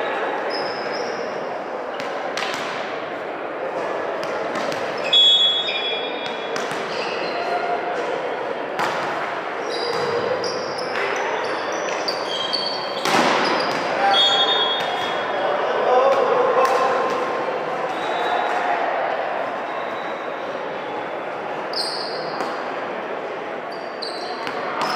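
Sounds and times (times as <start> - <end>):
crowd chatter: 0.0 - 24.9
shoes squeaking on court: 0.5 - 1.4, 4.6 - 7.6, 9.6 - 15.4, 23.7 - 24.9
volleyball being hit: 8.8 - 9.2.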